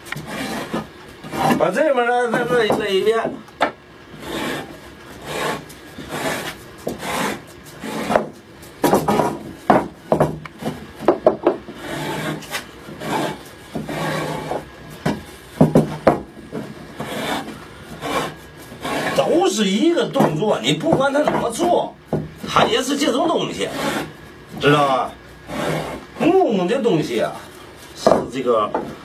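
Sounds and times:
hand plane rasping on wood: 0.2 - 2.8, 4.1 - 9.4, 11.7 - 14.7, 17.0 - 19.5, 23.6 - 24.1, 25.5 - 26.3.

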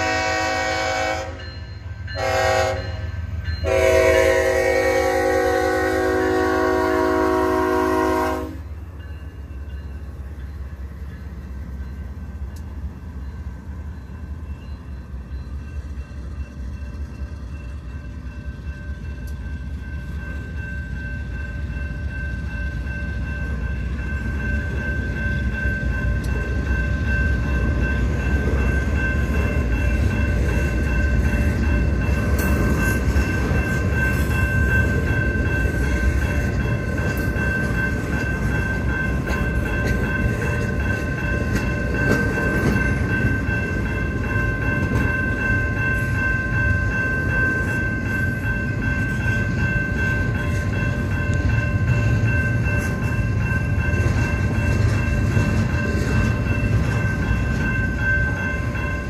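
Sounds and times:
locomotive air horn: 0.0 - 1.4, 2.2 - 8.6
freight train rumbling past: 0.0 - 59.0.

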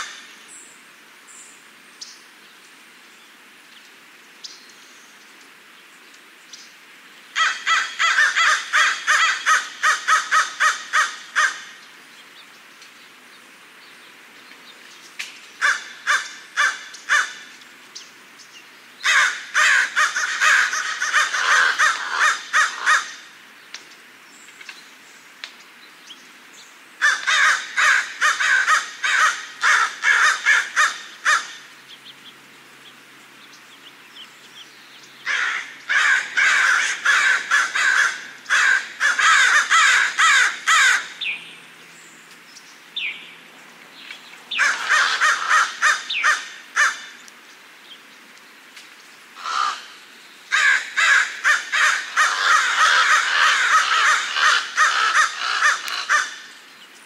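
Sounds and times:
crows cawing: 7.4 - 11.8, 15.6 - 17.5, 19.0 - 23.3, 27.0 - 31.7, 35.2 - 41.2, 44.5 - 47.2, 49.4 - 56.5.

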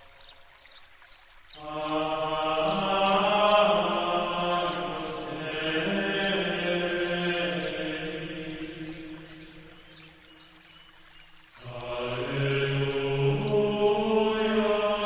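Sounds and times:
chant-like drone music: 1.6 - 9.7, 11.6 - 15.0.

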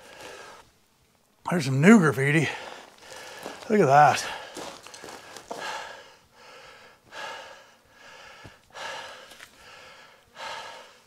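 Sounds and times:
man breathing hard: 2.5 - 11.0.

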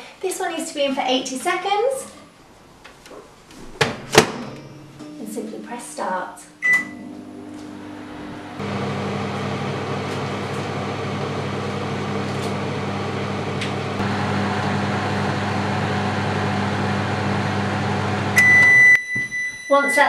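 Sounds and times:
microwave high beep: 6.6 - 7.1, 14.1 - 20.0
microwave oven humming: 6.6 - 19.0.

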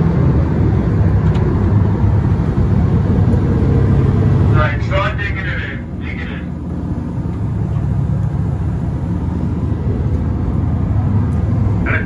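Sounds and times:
boat engine droning: 0.0 - 12.0
wind and water rushing: 0.0 - 12.0.

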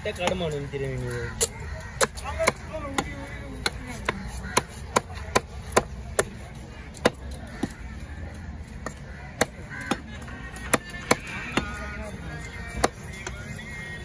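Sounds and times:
cleaver chopping fish on wood: 1.4 - 6.4, 7.0 - 7.8, 8.8 - 10.1, 10.7 - 11.8, 12.7 - 13.4.

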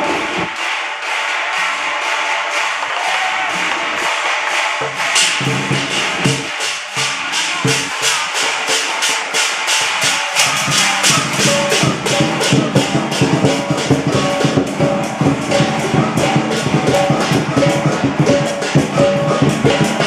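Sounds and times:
fast percussion beat: 0.0 - 20.0
sustained pitched instruments: 3.8 - 20.0
low drumming: 4.8 - 8.5, 9.8 - 20.0.

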